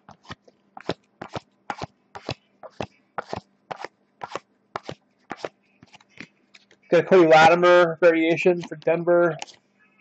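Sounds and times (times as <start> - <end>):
trading cards snapping: 0.1 - 6.3.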